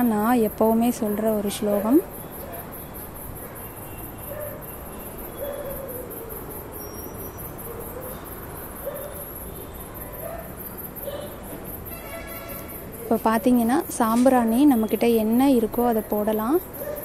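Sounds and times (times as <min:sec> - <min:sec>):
low background hiss: 0:00.0 - 0:03.4
crickets chirping: 0:00.0 - 0:17.0.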